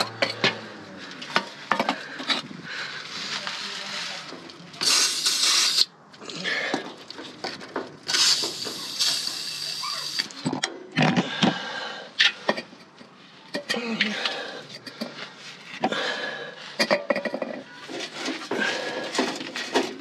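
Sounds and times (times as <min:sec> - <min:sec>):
knocks and clatters of handling: 0:01.2 - 0:02.5, 0:06.7 - 0:08.8, 0:16.8 - 0:20.0
aerosol spray hissing: 0:04.8 - 0:05.9.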